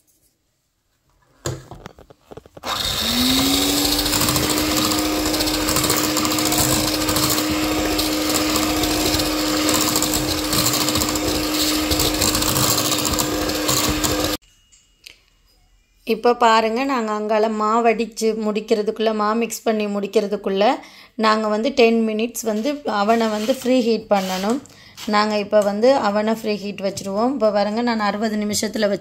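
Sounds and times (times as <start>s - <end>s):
electric hand mixer whining: 2.6s - 14.4s.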